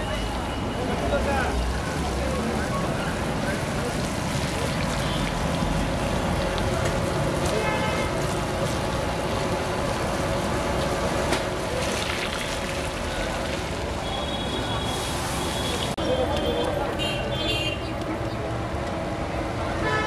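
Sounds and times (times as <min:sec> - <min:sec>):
hot oil sizzling: 0:00.9 - 0:15.9.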